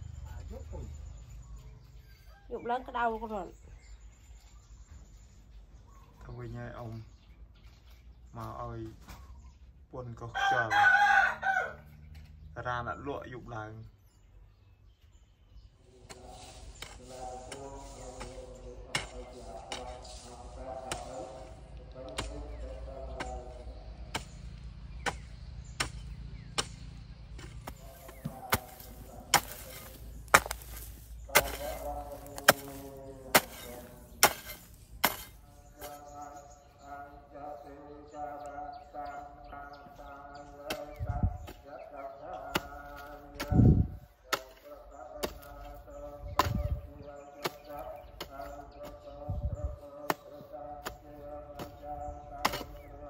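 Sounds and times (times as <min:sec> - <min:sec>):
chopping strikes: 0:22.1 - 0:22.6, 0:24.1 - 0:36.0, 0:46.4 - 0:46.8, 0:52.4 - 0:52.9
dull low thumps: 0:43.4 - 0:44.1, 0:46.2 - 0:47.0.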